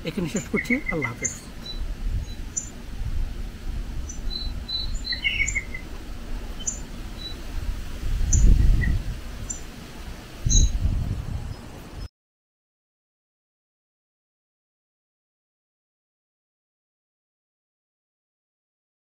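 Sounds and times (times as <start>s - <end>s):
birds chirping: 0.0s - 3.0s, 3.6s - 7.7s, 8.3s - 9.8s, 10.4s - 12.1s.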